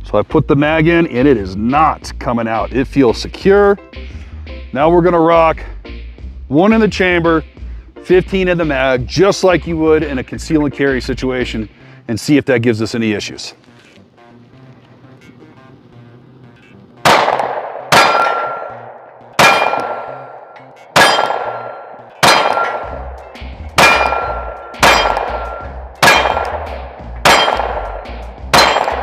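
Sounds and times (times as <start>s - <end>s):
pistol shots with metallic clang: 17.0s - 23.2s, 23.8s - 29.0s.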